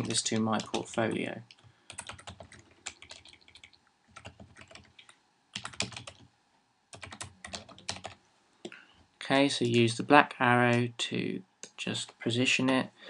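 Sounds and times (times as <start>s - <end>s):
typing on computer keyboard: 0.0s - 6.3s, 7.0s - 8.2s.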